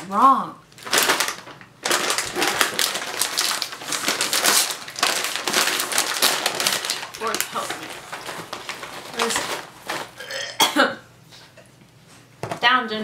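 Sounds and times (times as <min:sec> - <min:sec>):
plastic chip bag crinkling: 0:00.7 - 0:10.5.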